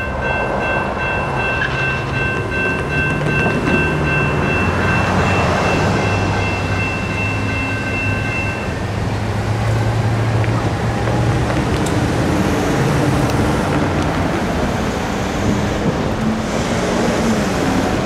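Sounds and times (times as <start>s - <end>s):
electronic crossing bells ringing: 0.0s - 9.0s
low rumble of traffic: 0.0s - 18.0s.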